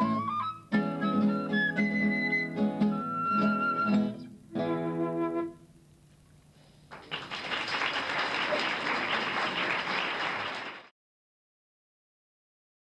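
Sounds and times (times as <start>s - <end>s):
flute and guitar chord: 0.0s - 5.6s
audience applause: 6.9s - 10.9s.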